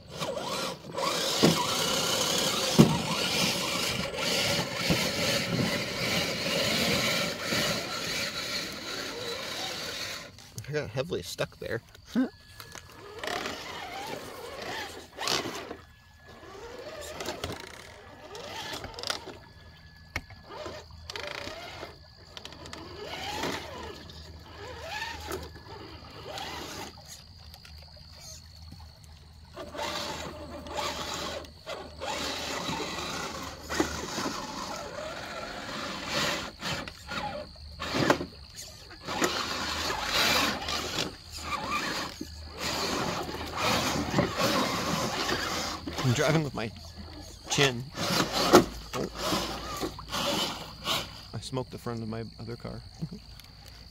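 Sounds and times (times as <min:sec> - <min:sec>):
electric motors whining: 0:00.0 - 0:28.8, 0:29.4 - 0:51.4
tyres scrabbling on stone: 0:00.1 - 0:10.7, 0:39.0 - 0:51.2
water splashing: 0:22.0 - 0:53.9.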